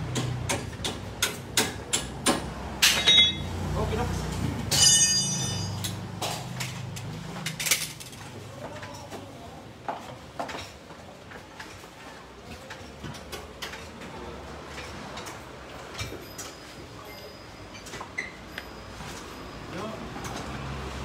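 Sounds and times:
ringing metal clank: 2.8 - 3.5, 4.7 - 6.1
steel tools clinking: 2.8 - 3.5, 4.7 - 8.2.

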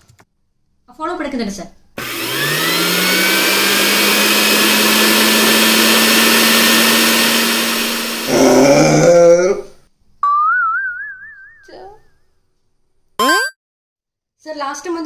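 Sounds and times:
electric motor whining: 2.0 - 8.5.

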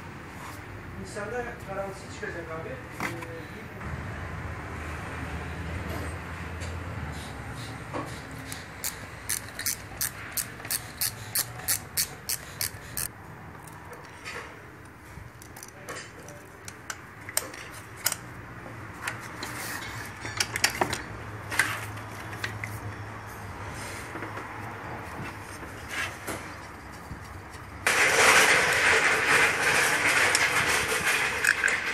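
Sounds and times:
metal tools clinking: 8.1 - 13.1
ratchet wrench clicking: 8.4 - 13.1.

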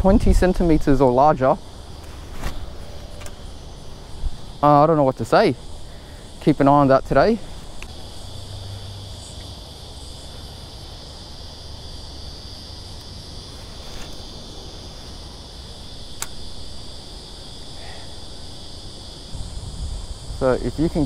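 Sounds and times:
insects chorus: 0.0 - 21.0
sharp click: 16.2 - 16.4.

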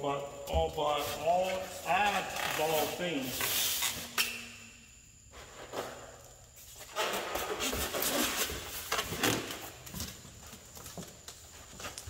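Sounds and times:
styrofoam and cardboard rustling: 0.9 - 4.1, 5.4 - 10.7.

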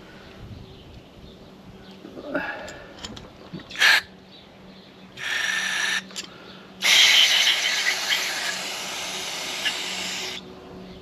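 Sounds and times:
aerosol spraying: 6.8 - 10.4.

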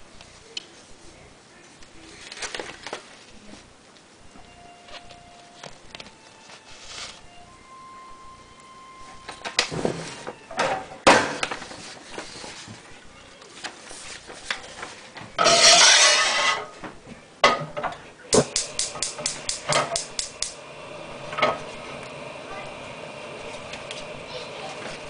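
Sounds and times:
loud rustling scrape: 13.8 - 16.8.

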